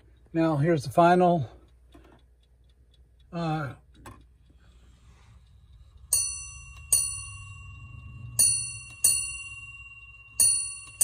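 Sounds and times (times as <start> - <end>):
clock bell striking: 6.0 - 11.0.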